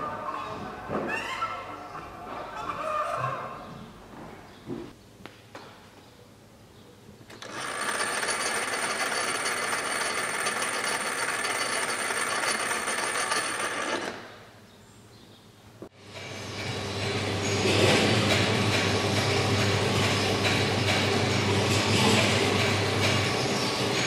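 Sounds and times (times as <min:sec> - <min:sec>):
plastic gears rattling and whining: 0:07.3 - 0:14.3.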